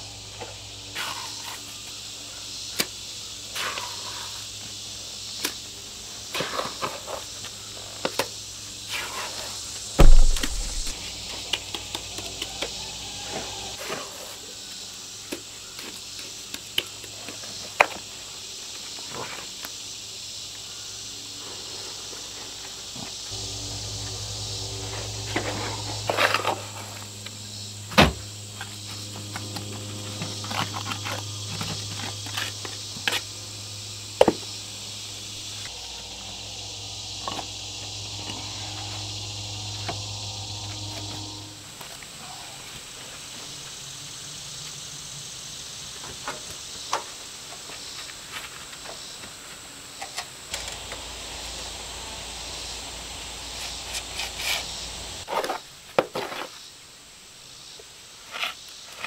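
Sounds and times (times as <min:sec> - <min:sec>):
high-pitched insect chorus: 0:00.0 - 0:59.0
low hum: 0:10.0 - 0:11.0, 0:23.3 - 0:32.4, 0:33.3 - 0:41.9, 0:50.6 - 0:55.2.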